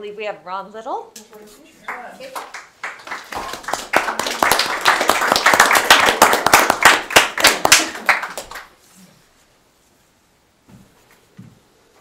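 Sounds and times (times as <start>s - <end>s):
small group applauding: 1.8s - 8.8s.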